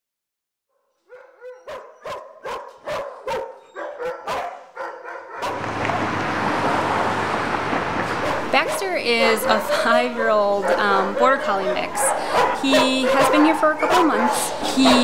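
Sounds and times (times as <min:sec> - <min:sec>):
dog yip: 0:01.1 - 0:05.6
dog barking sharply: 0:01.1 - 0:06.1, 0:08.0 - 0:08.8, 0:10.6 - 0:15.0.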